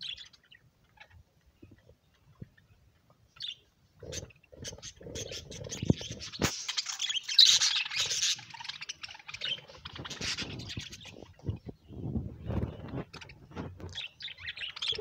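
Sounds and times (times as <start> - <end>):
budgerigars chattering and chirping: 0.0 - 2.8, 3.4 - 11.8, 12.8 - 15.0.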